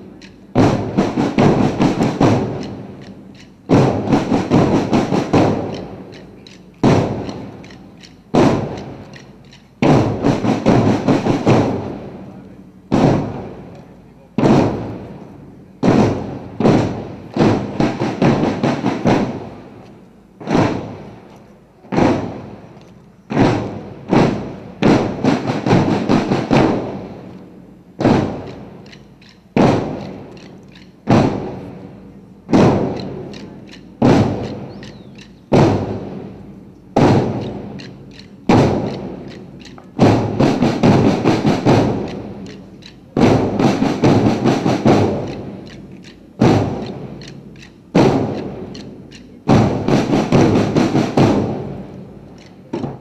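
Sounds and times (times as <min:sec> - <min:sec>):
drum rolls: 0:00.0 - 0:53.0
marching drums beating: 0:00.0 - 0:53.0.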